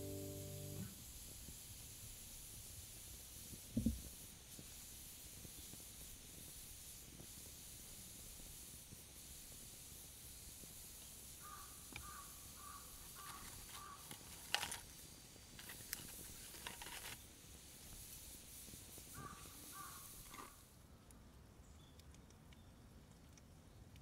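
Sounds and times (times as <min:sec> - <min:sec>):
crow cawing: 0:11.4 - 0:14.1, 0:19.2 - 0:20.1
light clicks and rustles: 0:13.0 - 0:17.2.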